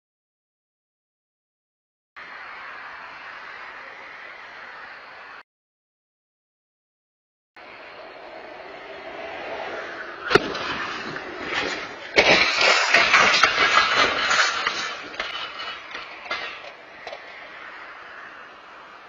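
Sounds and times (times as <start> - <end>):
car crash bang: 10.3 - 17.2
crashing and scraping: 10.3 - 17.4.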